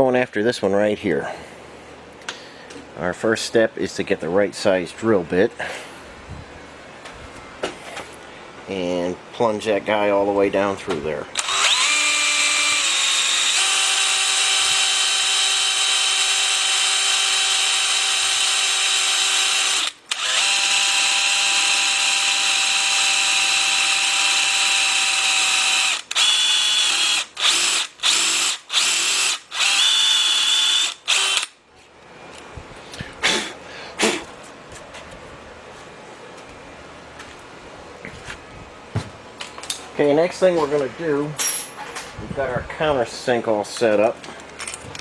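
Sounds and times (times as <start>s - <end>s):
electric drill boring: 11.4s - 31.6s.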